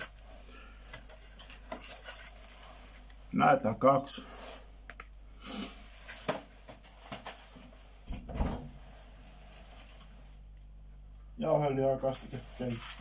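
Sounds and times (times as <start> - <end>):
grocery packages rustling: 11.8 - 13.0.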